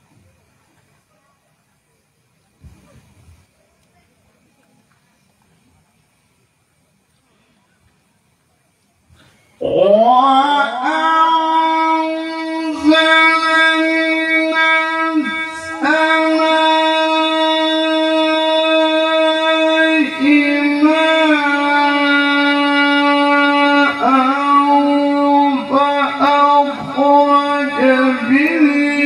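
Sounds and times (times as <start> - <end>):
man chanting through microphone: 9.6 - 29.0.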